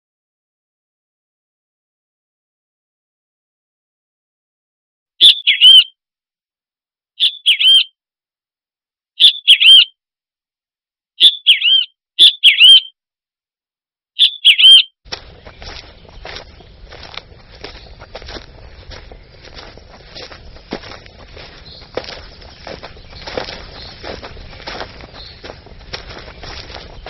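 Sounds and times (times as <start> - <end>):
bird chirping: 5.2 - 5.9, 7.2 - 7.9, 9.2 - 9.9, 11.2 - 12.9, 14.2 - 27.0.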